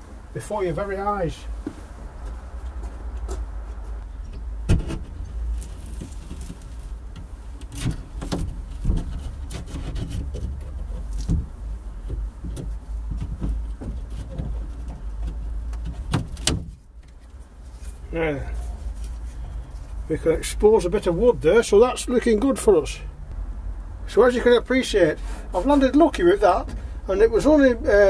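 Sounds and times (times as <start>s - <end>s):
sharp knocks: 4.7s - 5.2s
plasterboard scraping and crumbling: 4.8s - 16.8s.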